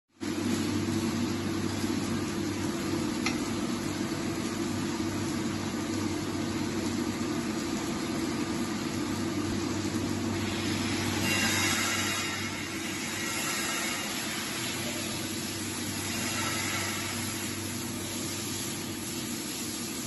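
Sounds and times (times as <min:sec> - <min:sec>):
machine hum: 0:00.2 - 0:20.0
hiss: 0:10.4 - 0:20.0.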